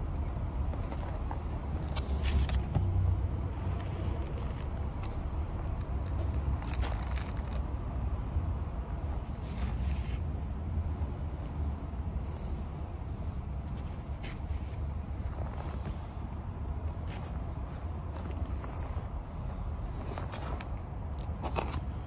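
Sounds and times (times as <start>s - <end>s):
steady low rumble: 0.0s - 22.0s
plastic packaging rustling: 4.2s - 7.7s.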